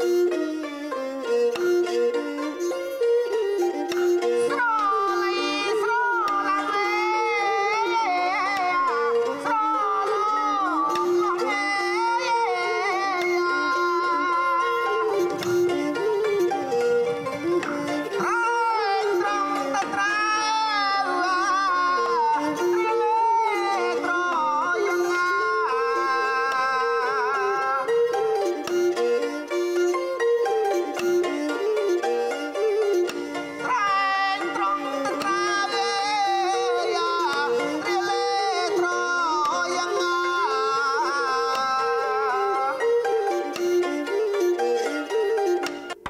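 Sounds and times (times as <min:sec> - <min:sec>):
bowed fiddle melody: 0:00.0 - 0:46.0
traditional ensemble music: 0:00.0 - 0:46.0.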